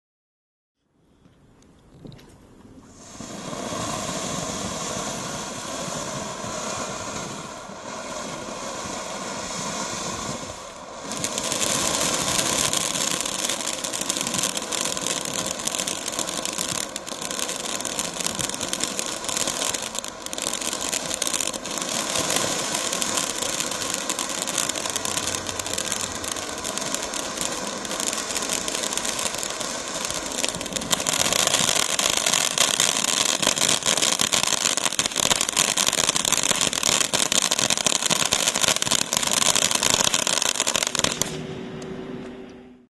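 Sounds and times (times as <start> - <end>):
firework fountain hissing and crackling: 2.8 - 41.5.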